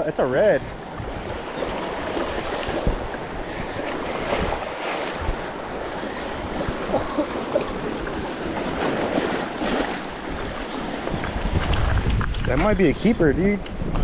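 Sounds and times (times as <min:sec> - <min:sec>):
wind buffeting microphone: 0:00.0 - 0:14.0
waves splashing against rocks: 0:00.6 - 0:12.8.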